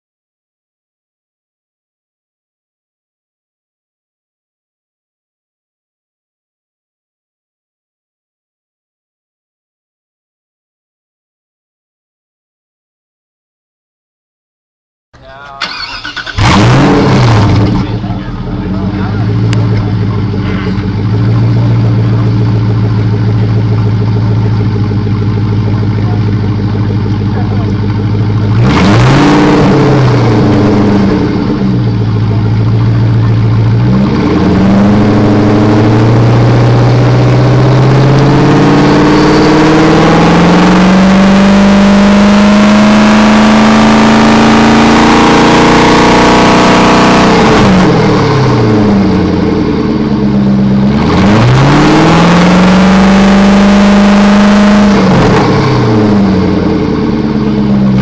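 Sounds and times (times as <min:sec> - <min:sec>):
car engine revving: 0:15.6 - 0:58.0.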